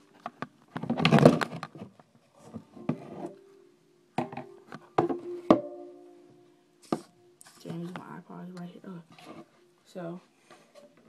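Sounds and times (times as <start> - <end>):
ukulele strings ringing: 4.2 - 6.5.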